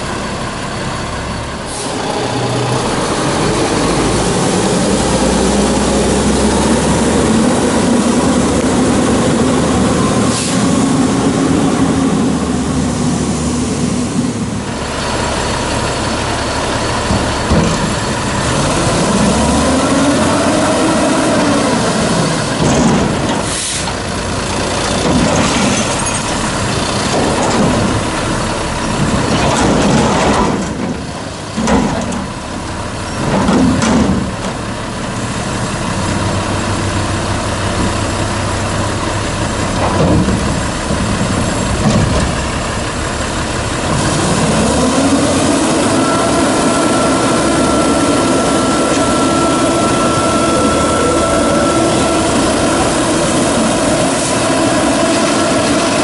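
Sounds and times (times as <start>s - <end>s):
truck diesel engine revving: 0.0s - 56.0s.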